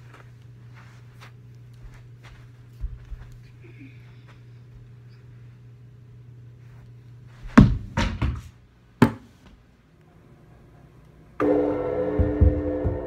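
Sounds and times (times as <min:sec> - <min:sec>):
ball hitting drum kit: 0:07.5 - 0:09.3, 0:11.4 - 0:13.0
music: 0:11.4 - 0:13.0.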